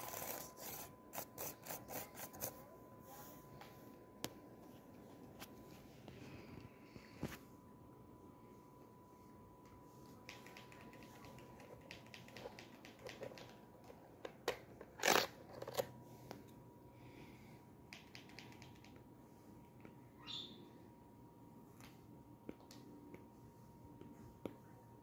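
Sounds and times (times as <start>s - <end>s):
faint high-pitched tone: 1.8s - 10.3s.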